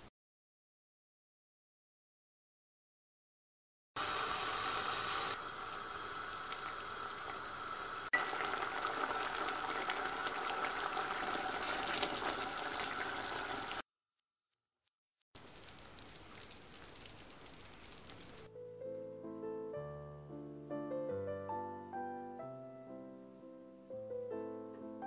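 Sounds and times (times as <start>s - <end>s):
thick mixture bubbling in saucepan: 4.2s - 13.8s, 15.4s - 18.5s.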